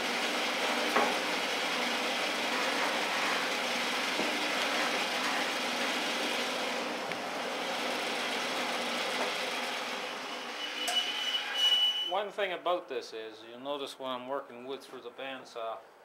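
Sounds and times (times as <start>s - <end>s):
bandsaw running: 0.0s - 10.8s.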